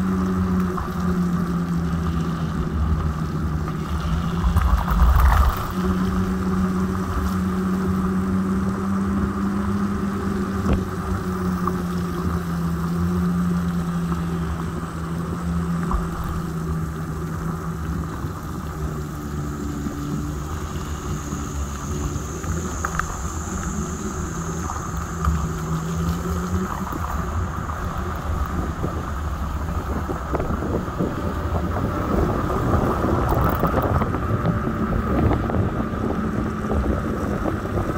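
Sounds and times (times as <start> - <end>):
electric motor whine: 0.0 - 37.9
wind on microphone: 0.0 - 37.9
tyre rumble on wet asphalt: 2.0 - 12.5.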